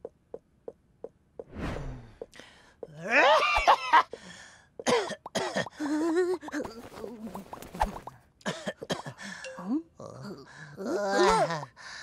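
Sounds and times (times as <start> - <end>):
cartoon character grunts and babbling: 9.5 - 11.7.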